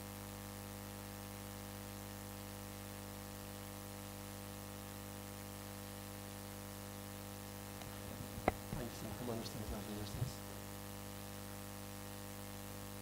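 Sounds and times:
electrical hum: 0.0 - 13.0
soft hiss: 7.2 - 12.8.

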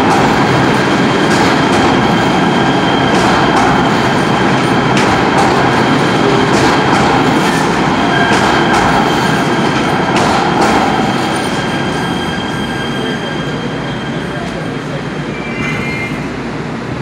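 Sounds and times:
train wheels rumbling on rail: 0.0 - 17.0
wheel squeal: 11.0 - 14.5, 15.3 - 16.3.

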